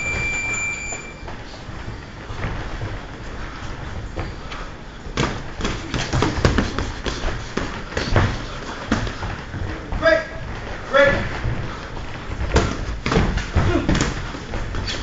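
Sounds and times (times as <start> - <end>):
boxing gloves thudding and slapping: 5.1 - 15.0.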